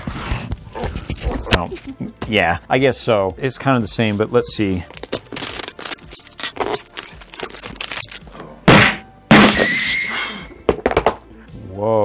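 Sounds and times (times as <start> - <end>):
plastic capsule clicking and crackling: 4.9 - 8.3.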